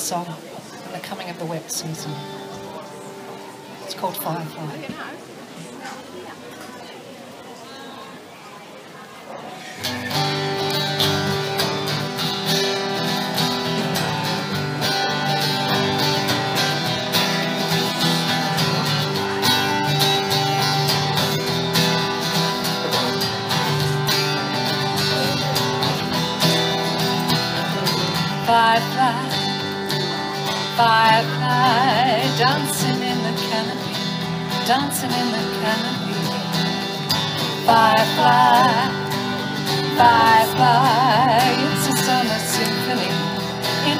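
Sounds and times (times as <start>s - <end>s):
acoustic guitars playing: 1.0s - 4.8s, 9.4s - 43.9s
person singing: 27.6s - 43.9s.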